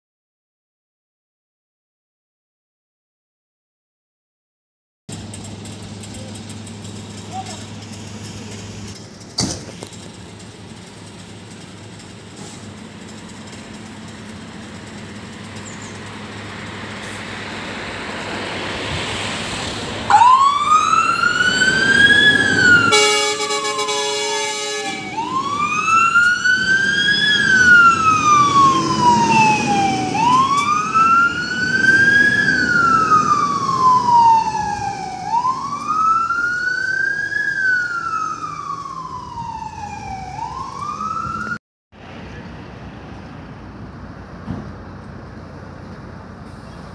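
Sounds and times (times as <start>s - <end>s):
fire engine diesel engine: 5.1s - 46.9s
wailing siren: 20.0s - 41.6s
horn blast: 22.8s - 25.1s.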